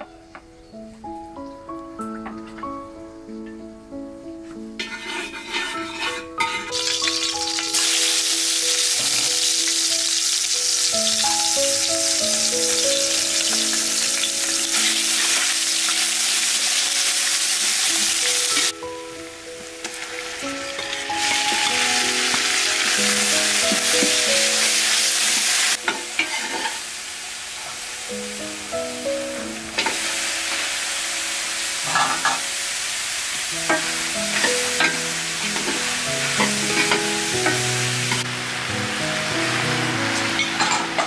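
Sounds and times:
light background music: 0:00.0 - 0:26.9, 0:27.7 - 0:32.6, 0:33.2 - 0:41.0
ladle stirring in pot: 0:04.8 - 0:06.7
paste sizzling in hot oil: 0:04.8 - 0:18.8, 0:19.6 - 0:41.0.

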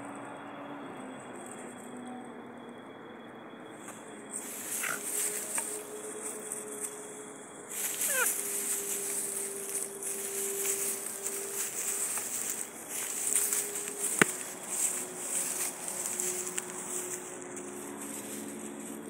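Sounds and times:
grass rustling and crackling: 0:03.9 - 0:19.0
insect buzz: 0:03.9 - 0:19.0.

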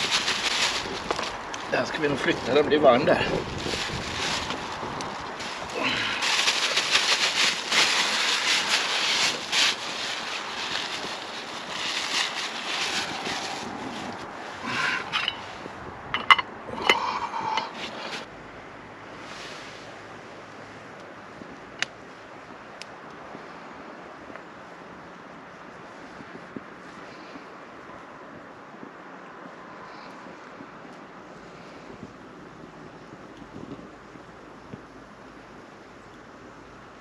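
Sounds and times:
plastic bag crinkling: 0:00.0 - 0:15.5.

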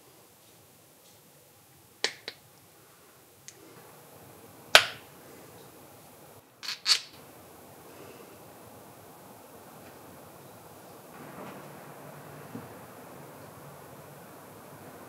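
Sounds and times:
tools clicking and knocking: 0:06.6 - 0:07.2.

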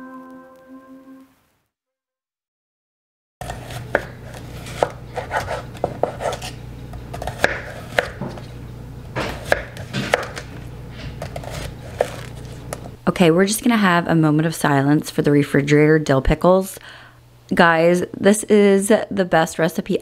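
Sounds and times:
knife slicing on cutting board: 0:03.4 - 0:06.6, 0:07.2 - 0:08.4, 0:09.2 - 0:12.9.

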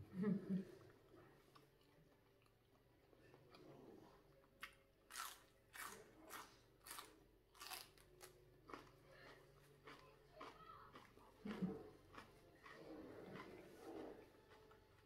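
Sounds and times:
celery crunching: 0:05.1 - 0:08.9.

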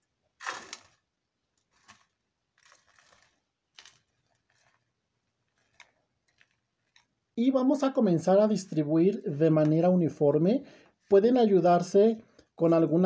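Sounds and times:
crumbs falling: 0:00.4 - 0:07.2.

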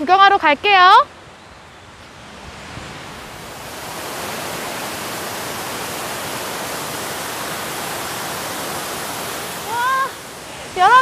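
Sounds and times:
waterfall pouring: 0:03.3 - 0:11.0.

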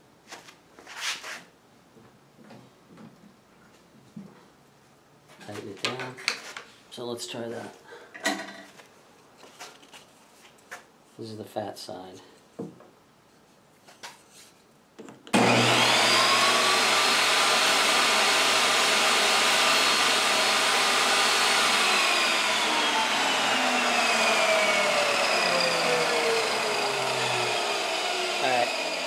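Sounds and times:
saw ripping wood: 0:15.3 - 0:29.0
table saw motor whining: 0:15.3 - 0:29.0.

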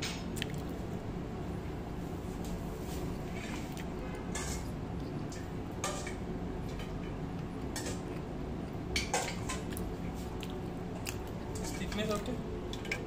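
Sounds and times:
low background hum: 0:00.0 - 0:13.0
person chewing crispy food: 0:09.7 - 0:11.5.

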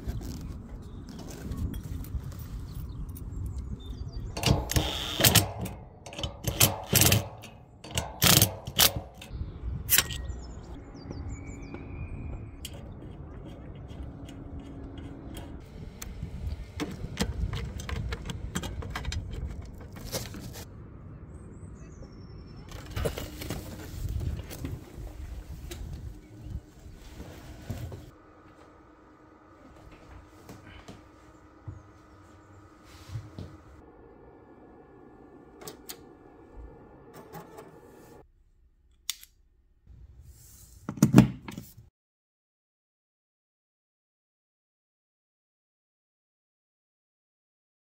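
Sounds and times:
low steady rumble: 0:12.1 - 0:40.5
steady hum: 0:22.7 - 0:38.6.

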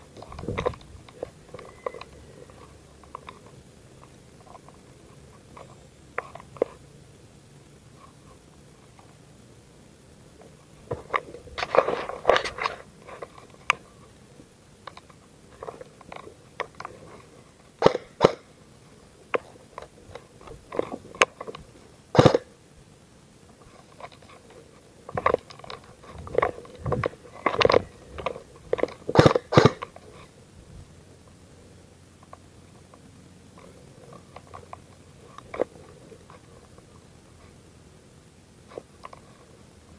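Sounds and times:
sharp clicks: 0:17.8 - 0:18.5, 0:25.1 - 0:30.0.

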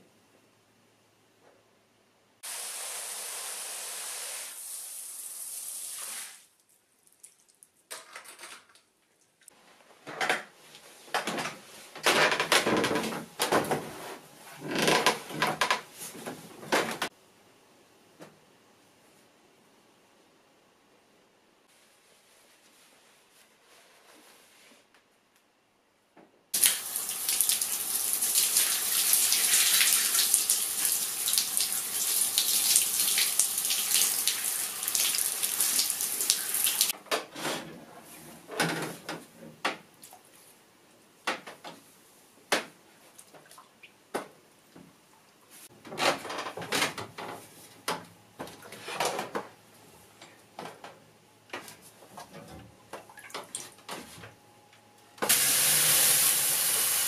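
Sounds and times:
water running: 0:26.6 - 0:36.9, 0:55.3 - 0:57.0.

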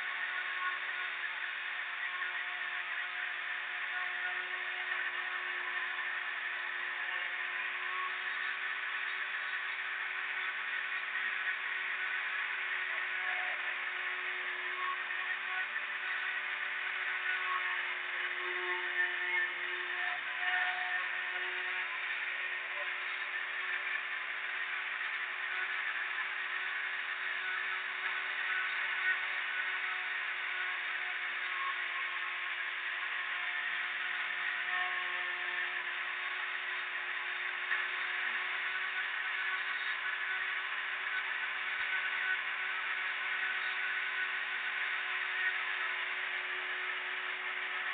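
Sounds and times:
steady hum: 0:00.0 - 0:47.9.

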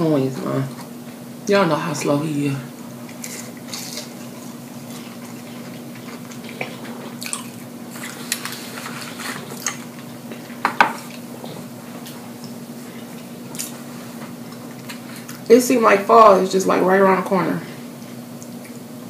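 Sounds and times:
steady low hum: 0:00.0 - 0:19.0
person chewing and lip smacking: 0:03.0 - 0:08.7.

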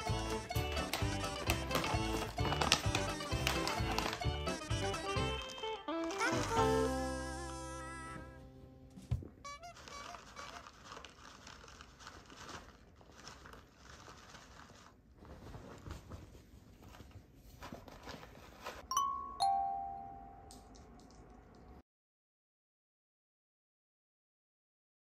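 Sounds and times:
plastic packet crinkling: 0:00.0 - 0:06.8, 0:09.5 - 0:16.0
two-note chime: 0:18.9 - 0:20.5.

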